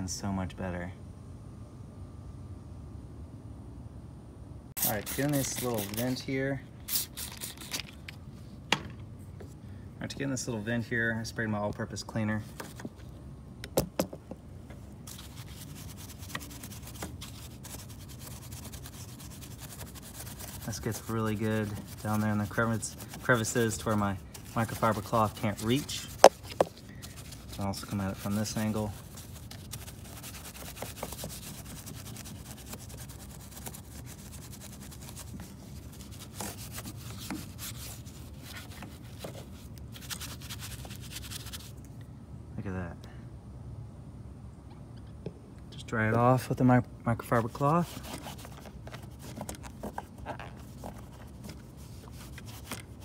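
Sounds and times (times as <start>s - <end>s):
brush bristles scrubbing plastic: 4.8s - 6.2s, 15.0s - 41.8s, 47.5s - 53.0s.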